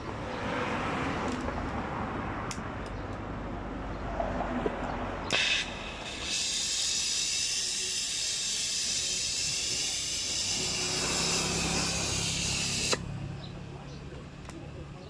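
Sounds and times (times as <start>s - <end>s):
torch flame hissing: 5.3s - 13.0s.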